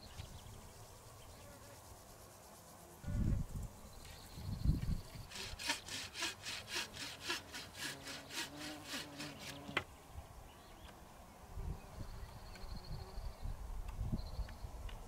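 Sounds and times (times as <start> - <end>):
hand saw cutting wood: 5.3 - 9.8.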